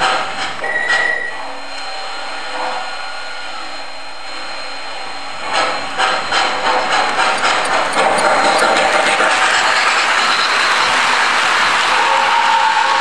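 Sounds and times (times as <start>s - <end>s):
model train chuffing beat: 0.0s - 1.6s, 4.7s - 13.0s
model steam train hissing: 1.4s - 13.0s.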